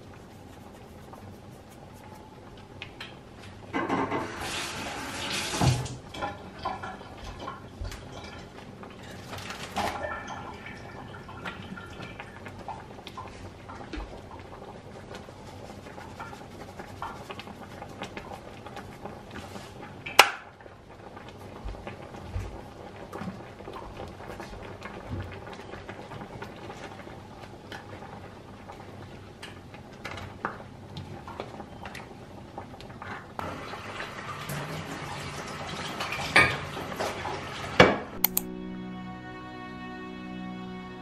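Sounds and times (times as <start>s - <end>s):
dishes and utensils clinking: 6.1s - 12.2s.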